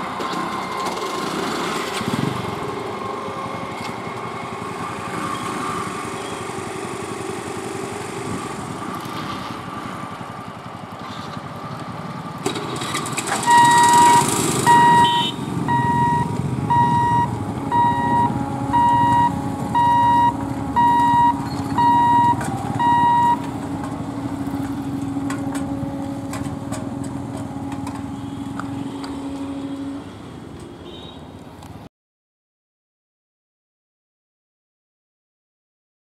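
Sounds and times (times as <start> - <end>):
motorcycles and traffic passing: 0.0 - 31.9
train rushing past: 12.2 - 30.6
level-crossing warning beeps: 13.4 - 23.5.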